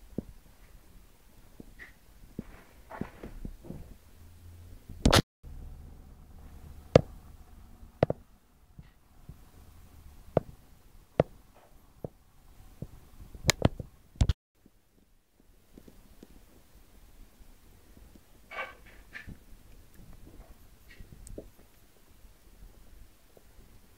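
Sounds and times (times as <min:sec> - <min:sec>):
faint low hum: 0:00.0 - 0:23.9
sharp clicks and taps: 0:06.9 - 0:07.1, 0:08.0 - 0:08.2, 0:12.8 - 0:14.4.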